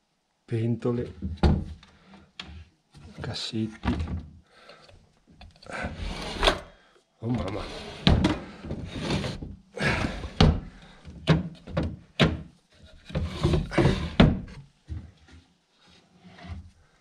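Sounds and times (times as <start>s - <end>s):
wooden drawers sliding: 5.7s - 6.7s, 7.3s - 15.1s
drawers banging closed: 5.8s - 6.6s, 7.4s - 14.6s.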